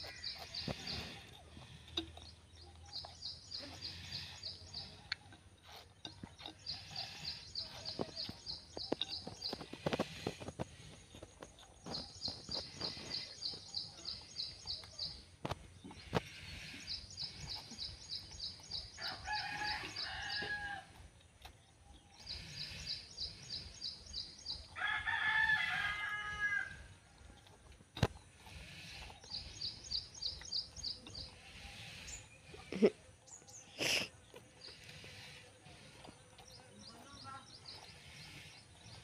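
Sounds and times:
rooster crowing: 24.8 - 26.8.

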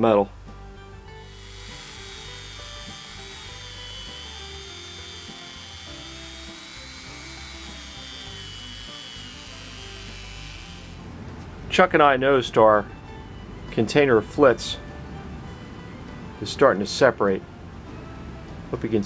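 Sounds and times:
soft background music: 0.0 - 19.0
rotary tool high-pitched whine: 1.2 - 11.1.

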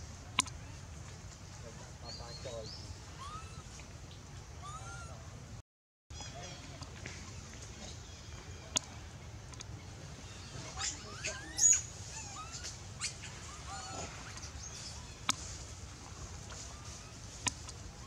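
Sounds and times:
baby monkey screaming: 3.1 - 3.8, 4.6 - 5.3, 10.3 - 15.2.

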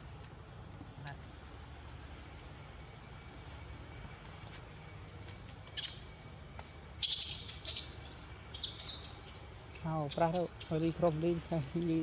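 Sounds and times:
insects droning: 0.0 - 12.0
sharp high-pitched chirping: 5.8 - 6.0, 6.9 - 10.8.

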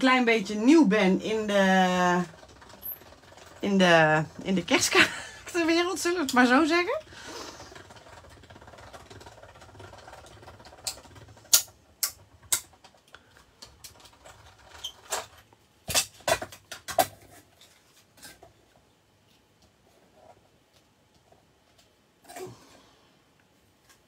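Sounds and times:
hand-cranked machine grinding: 7.4 - 11.7.

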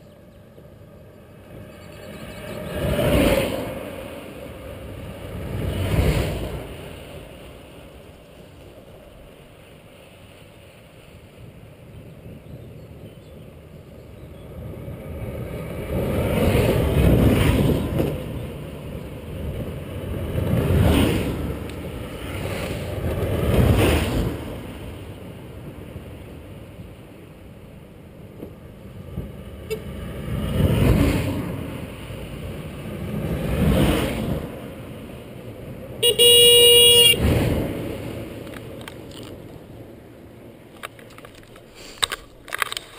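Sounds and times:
horn toot: 36.0 - 37.3.

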